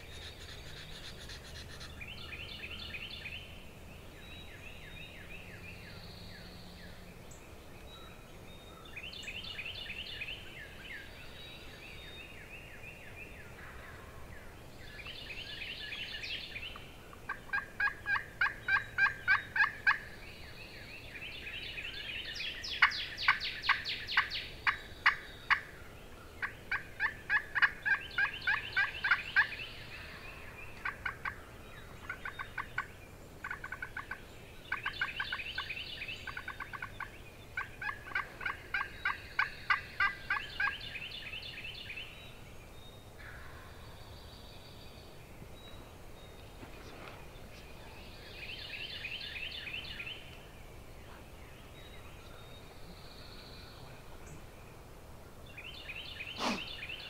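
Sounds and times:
turkey yelping: 37.6 - 40.7.

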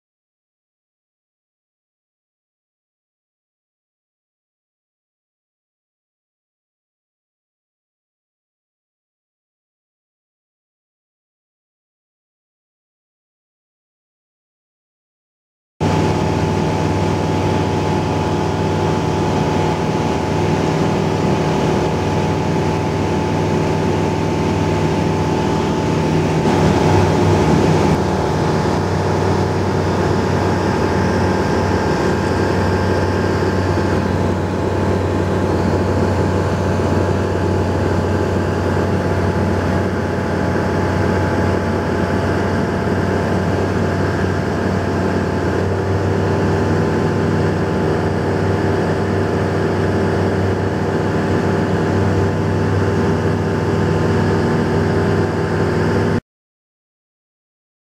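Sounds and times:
aircraft engine drone in cabin: 15.8 - 56.2.

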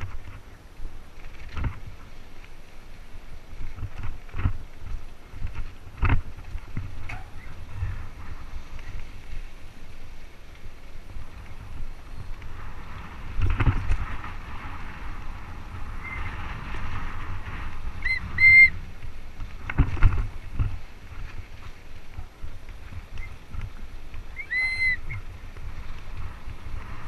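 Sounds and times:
bike tyres on dirt and gravel: 0.0 - 27.0
wind on microphone: 0.0 - 27.0
short high squeal: 24.4 - 25.1.

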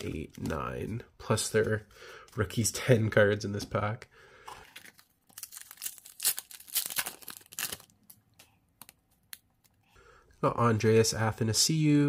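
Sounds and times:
wrapper crinkling and tearing: 4.6 - 9.8.

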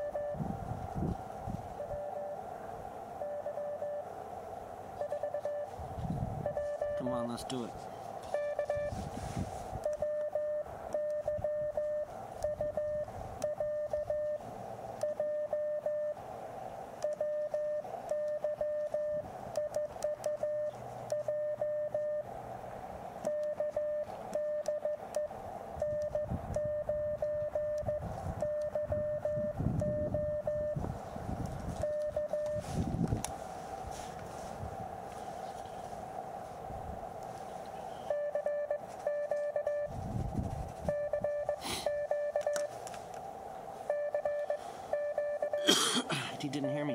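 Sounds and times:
morse code tone: 0.0 - 0.4, 1.7 - 2.4, 3.2 - 4.1, 5.0 - 5.7, 6.4 - 7.4, 8.2 - 9.0, 9.8 - 14.4, 15.0 - 16.2, 17.0 - 22.3, 23.2 - 30.8, 31.8 - 32.7, 37.8 - 40.0, 40.8 - 42.7, 43.8 - 45.7
receiver hiss: 0.0 - 46.9.

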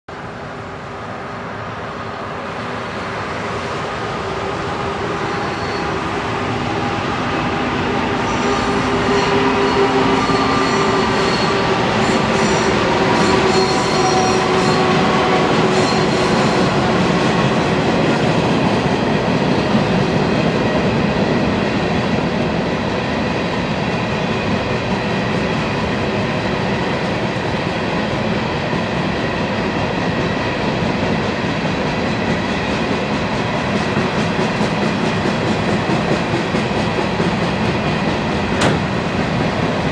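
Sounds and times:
diesel locomotive engines: 0.1 - 39.9
freight cars rolling on bridge: 30.7 - 39.9.

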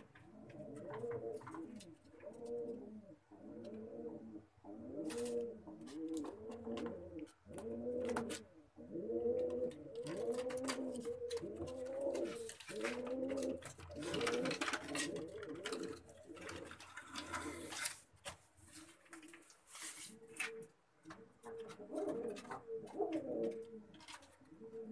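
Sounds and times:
pigeons cooing: 0.0 - 17.9, 19.0 - 24.9
sharp clicks and rustles: 9.8 - 24.6.

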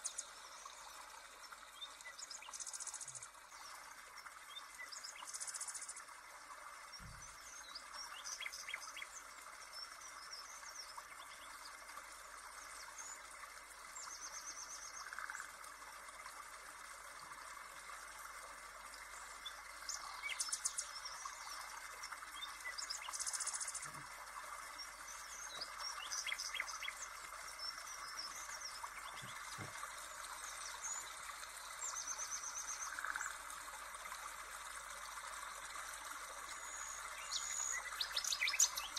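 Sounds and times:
birdsong: 6.9 - 11.8, 19.1 - 33.4, 36.4 - 38.9.

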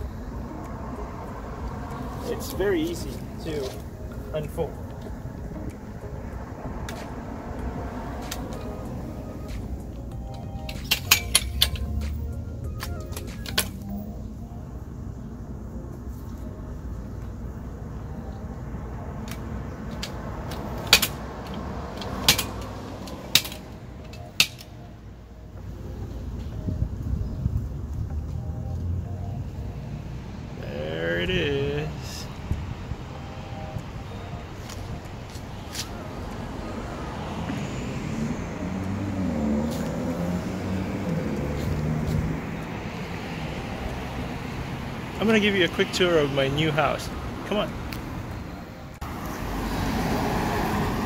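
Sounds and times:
car driving past: 4.8 - 9.6, 35.6 - 45.3, 49.0 - 51.0.

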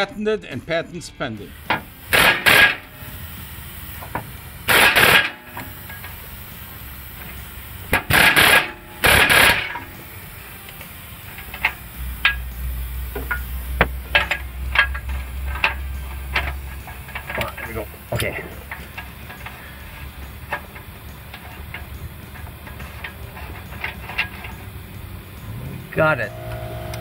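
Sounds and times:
steady low hum: 0.6 - 27.0
pneumatic air hammer bursts: 1.5 - 27.0.

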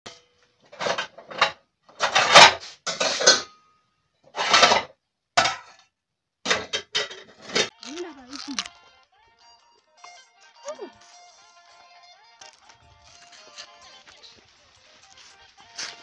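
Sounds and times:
metal pots and pans clattering: 0.1 - 5.9, 6.5 - 7.7.

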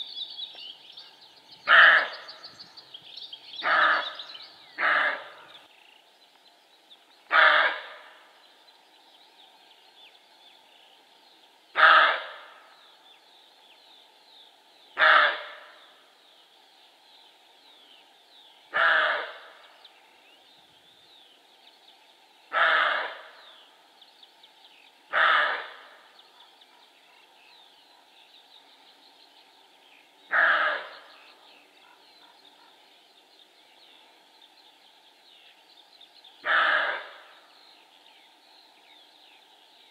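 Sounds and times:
deer barking: 36.4 - 37.1.

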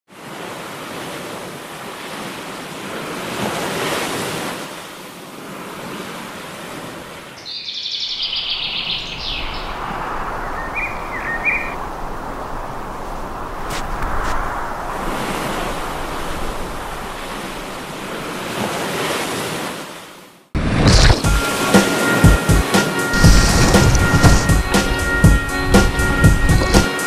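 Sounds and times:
bird chirping trill: 7.4 - 12.1
ocean surf breaking: 8.0 - 27.0.

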